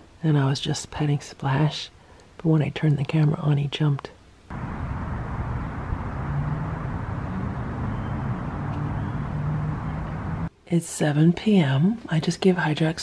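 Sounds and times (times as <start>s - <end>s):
faint low hum: 4.5s - 10.5s
outdoor background rumble: 4.5s - 10.5s.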